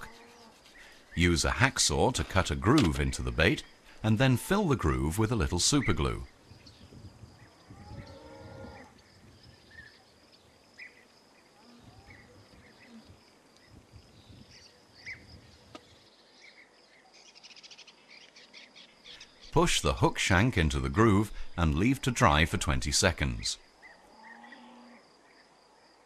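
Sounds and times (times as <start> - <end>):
drawn-out animal call: 0.0 - 0.7
small birds chirping: 0.0 - 2.4, 5.8 - 19.6
faint ticks: 12.9 - 13.7.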